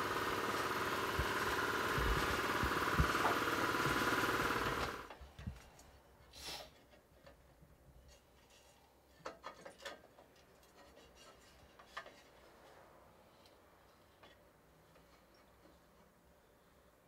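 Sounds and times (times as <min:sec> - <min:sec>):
workshop machine running: 0:00.0 - 0:05.1.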